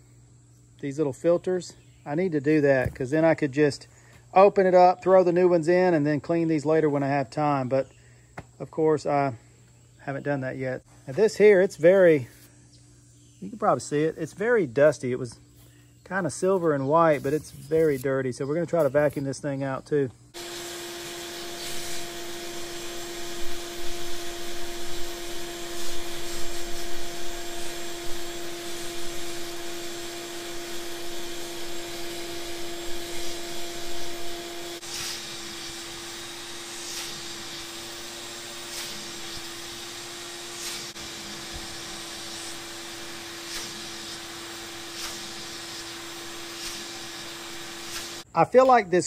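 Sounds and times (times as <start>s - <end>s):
vacuum nozzle scraping and sucking: 16.4s - 18.1s, 20.4s - 48.3s
vacuum cleaner motor whine: 20.4s - 48.2s.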